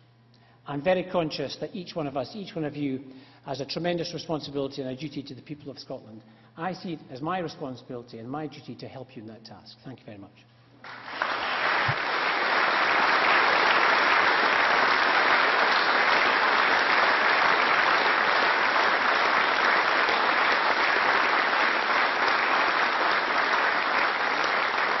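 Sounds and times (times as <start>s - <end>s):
crowd applauding: 10.8s - 25.0s.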